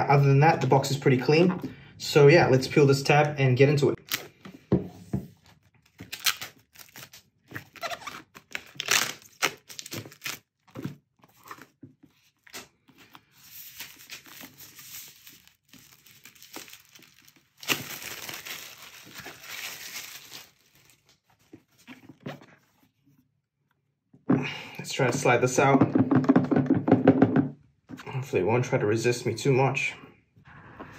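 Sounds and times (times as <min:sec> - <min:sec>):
plastic shrink wrap crinkling: 0:12.4 - 0:22.0.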